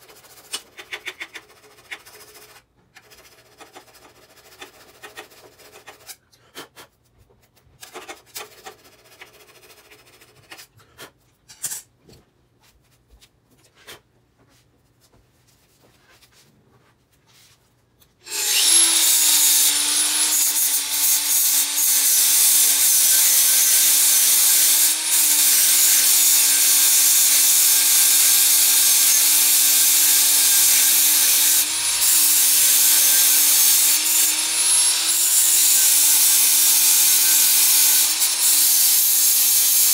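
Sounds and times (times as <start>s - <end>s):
angle grinder grinding metal: 18.2s - 39.9s.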